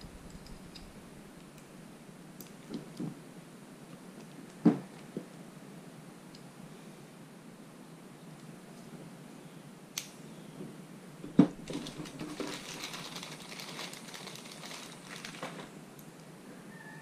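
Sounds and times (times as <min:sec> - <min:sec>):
light click: 0:09.9 - 0:10.2
plastic bag crinkling: 0:11.6 - 0:15.8.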